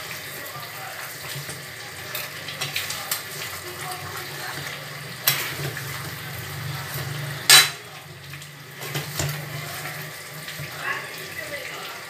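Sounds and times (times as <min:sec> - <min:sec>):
food sizzling: 0:00.0 - 0:12.0
metal clang: 0:07.5 - 0:07.8.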